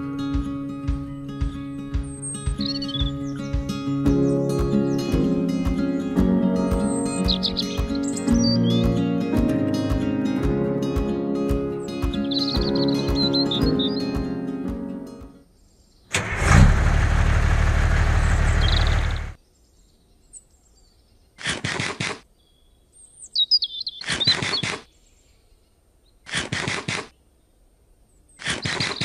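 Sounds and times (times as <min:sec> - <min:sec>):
birds chirping: 0:00.0 - 0:10.4, 0:11.7 - 0:14.6, 0:17.8 - 0:21.4, 0:22.2 - 0:29.0
short crunchy bursts: 0:21.4 - 0:22.2, 0:26.2 - 0:27.1, 0:28.4 - 0:29.0.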